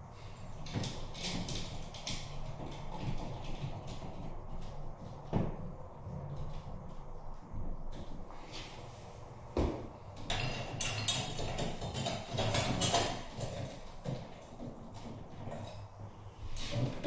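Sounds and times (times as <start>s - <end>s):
light fixture clattering and rustling: 9.6s - 17.0s.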